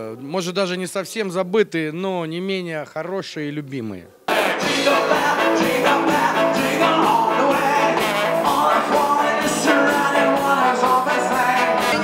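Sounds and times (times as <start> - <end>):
bass guitar: 4.3 - 12.0
drum kit beat: 4.3 - 12.0
electric guitars: 4.3 - 12.0
man singing: 4.3 - 12.0.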